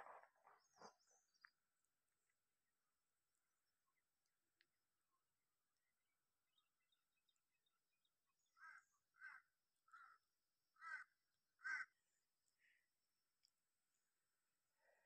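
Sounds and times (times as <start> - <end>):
bird giving harsh calls: 10.8 - 11.9.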